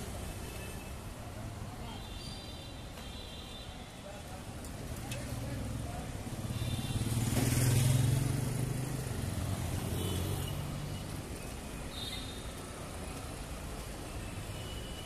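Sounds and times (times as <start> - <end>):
traffic hum: 0.0 - 3.2, 3.8 - 15.0
motorcycle passing: 6.3 - 10.9.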